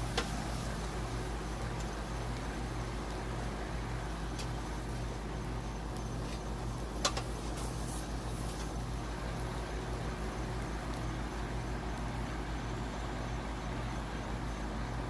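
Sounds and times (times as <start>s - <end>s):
low outdoor rumble: 0.0s - 15.0s
metal spatula clicking on grill pan: 7.0s - 7.4s.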